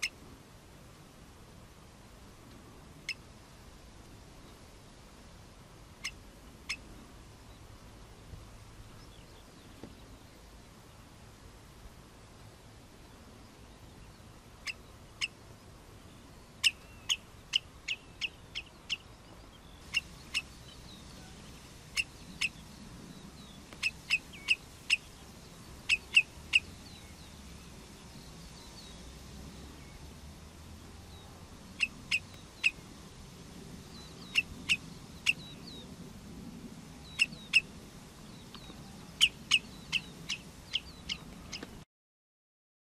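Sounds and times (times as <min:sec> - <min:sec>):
bird alarm call: 0:16.6 - 0:19.1, 0:19.7 - 0:22.6, 0:23.4 - 0:25.2, 0:25.8 - 0:27.2, 0:31.8 - 0:32.8, 0:34.0 - 0:35.8, 0:37.0 - 0:37.7, 0:38.5 - 0:41.7.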